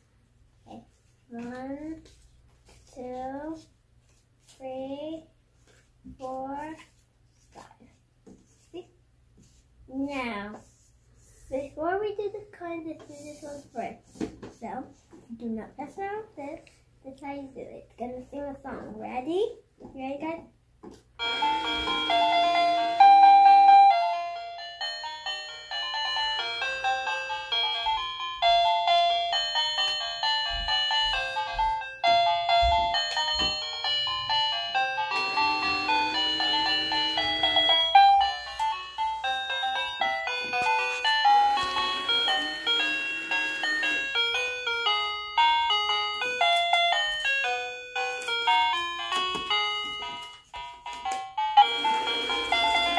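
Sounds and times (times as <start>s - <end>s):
electronic chiming jingle: 21.2s - 50.4s, 51.4s - 52.9s.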